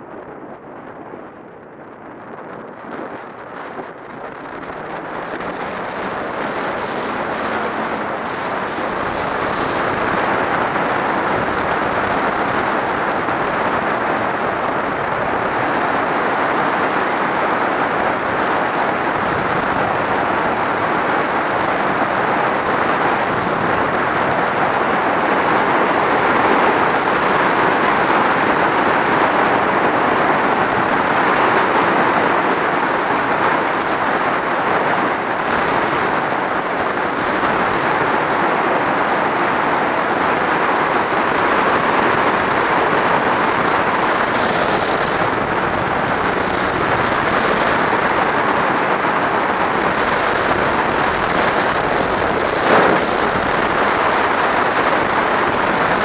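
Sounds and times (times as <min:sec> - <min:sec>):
wind rushing over microphone: 0:00.0 - 0:56.0
motorcycle engine: 0:49.8 - 0:56.0.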